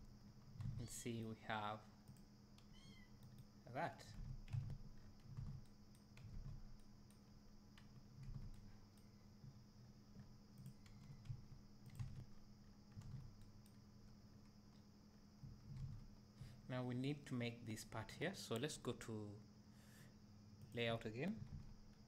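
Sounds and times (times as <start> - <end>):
steady low hum: 0.0 - 22.0
computer mouse clicks: 2.0 - 3.5, 4.1 - 9.1, 10.6 - 13.8
soft low thumps: 4.1 - 6.9, 7.5 - 14.2, 15.2 - 16.7.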